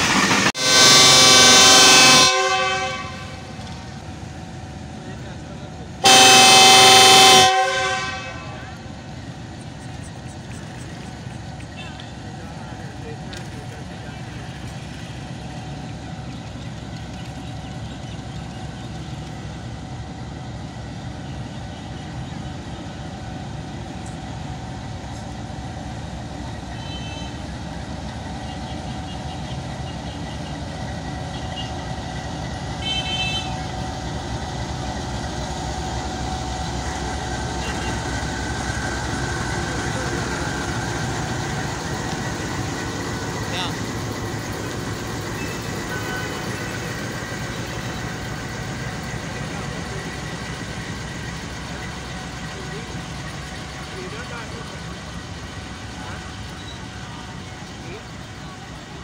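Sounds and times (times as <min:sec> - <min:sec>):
train wheels rolling on rails: 0:00.0 - 0:07.6, 0:08.8 - 0:59.0
locomotive engine rumbling: 0:00.0 - 0:59.0
high-pitched train horn toots: 0:00.6 - 0:03.5, 0:06.0 - 0:08.8, 0:32.8 - 0:33.7, 0:45.4 - 0:46.7.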